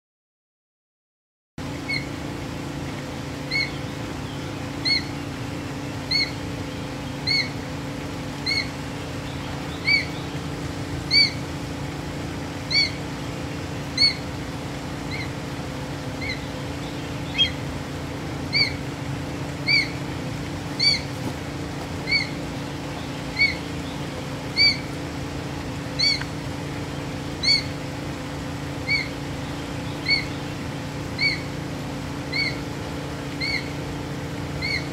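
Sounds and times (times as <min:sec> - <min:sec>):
steady low hum: 0:01.6 - 0:34.9
hawk calling: 0:01.8 - 0:02.2, 0:03.4 - 0:11.6, 0:12.6 - 0:14.4, 0:15.0 - 0:15.4, 0:16.1 - 0:17.8, 0:18.4 - 0:25.1, 0:25.8 - 0:27.8, 0:28.7 - 0:33.8, 0:34.5 - 0:34.9.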